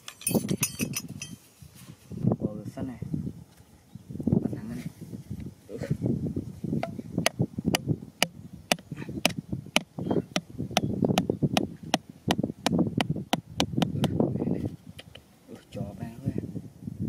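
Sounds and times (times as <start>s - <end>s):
hatchet knocking on plastic pipe: 8.7s - 14.2s.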